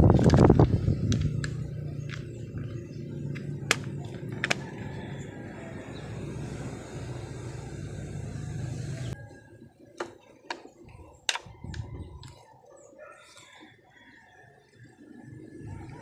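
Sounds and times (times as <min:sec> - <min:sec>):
steady low hum: 0:00.0 - 0:09.2
plastic parts clicking together: 0:03.7 - 0:04.8.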